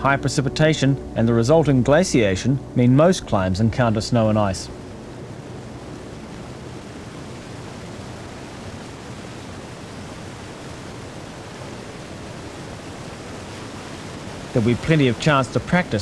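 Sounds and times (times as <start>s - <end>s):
stream rushing over boulders: 4.8s - 16.0s.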